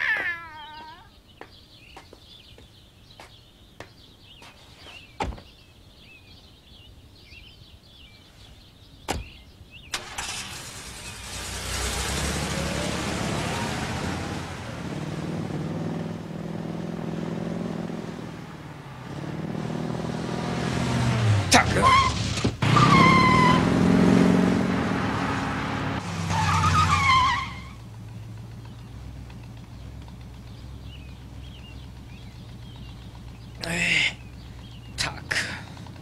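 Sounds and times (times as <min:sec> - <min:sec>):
birds chirping: 0:00.0 - 0:22.2, 0:24.6 - 0:36.0
car engine revving: 0:09.9 - 0:36.0.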